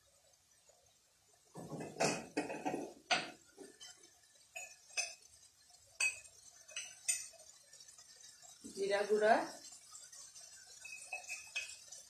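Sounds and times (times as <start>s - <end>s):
metal spoon clinking on containers: 10.8s - 11.9s.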